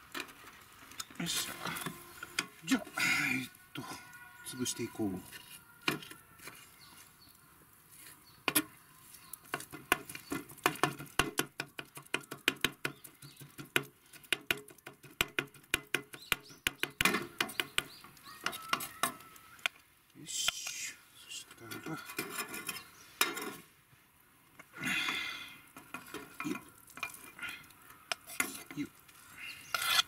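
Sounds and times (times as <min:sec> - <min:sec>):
knife scraping across board: 0:29.7 - 0:30.0.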